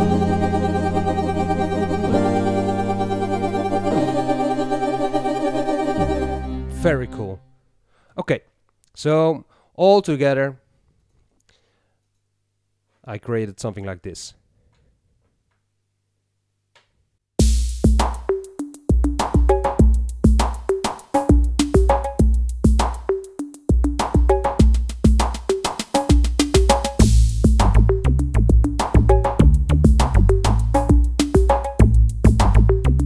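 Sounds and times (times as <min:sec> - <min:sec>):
synth bass line: 0:00.0 - 0:07.5, 0:27.0 - 0:30.9
synth chords: 0:00.0 - 0:07.6
electronic drum machine beat: 0:17.4 - 0:33.0.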